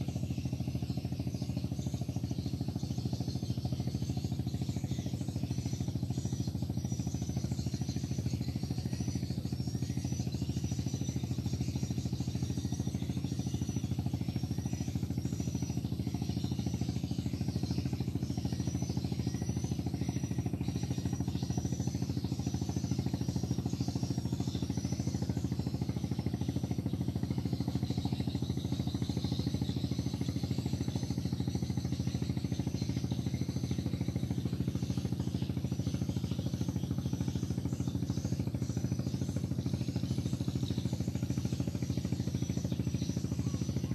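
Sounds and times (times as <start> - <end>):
small engine running: 0.0 - 43.9.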